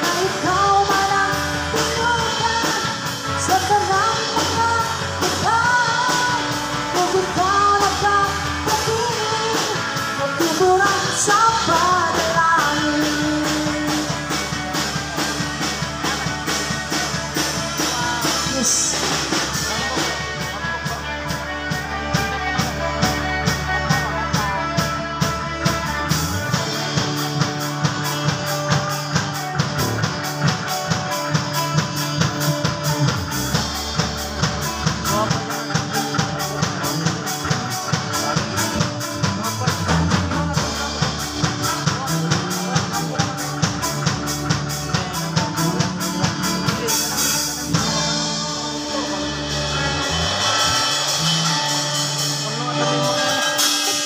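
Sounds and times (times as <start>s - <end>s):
woman singing into microphone: 0.0s - 15.0s, 17.5s - 21.2s, 35.0s - 54.0s
live band playing worship song: 0.0s - 54.0s.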